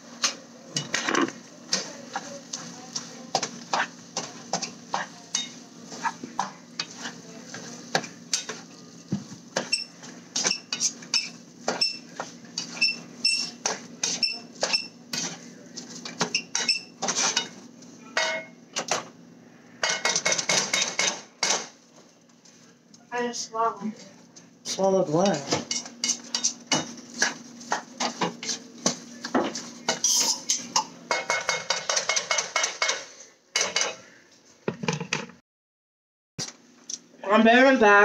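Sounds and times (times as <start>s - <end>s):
dishes and utensils clinking: 3.0s - 8.7s, 16.0s - 17.6s, 25.2s - 34.0s.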